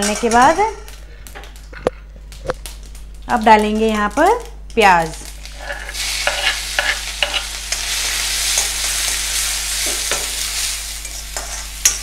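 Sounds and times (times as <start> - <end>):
onion sizzling in hot oil: 2.3 - 12.0
ladle scraping against pan: 5.4 - 7.8.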